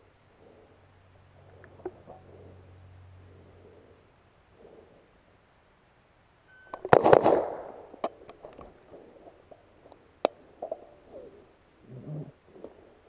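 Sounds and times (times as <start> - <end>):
sharp quieter cracks: 6.7 - 8.2
rifle shots: 6.8 - 8.1.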